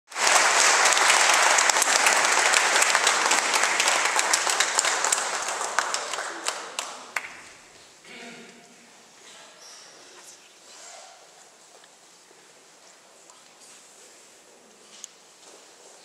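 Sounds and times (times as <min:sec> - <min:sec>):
audience applauding: 0:00.1 - 0:07.7.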